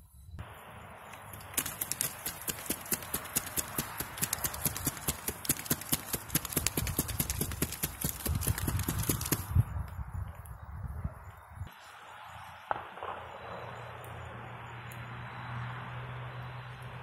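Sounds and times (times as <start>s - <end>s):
cardboard box flapping: 1.6s - 9.5s.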